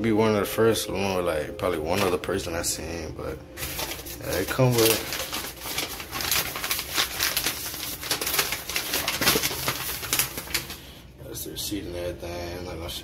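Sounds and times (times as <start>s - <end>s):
paper and plastic crinkling: 1.8s - 2.4s, 3.5s - 11.0s.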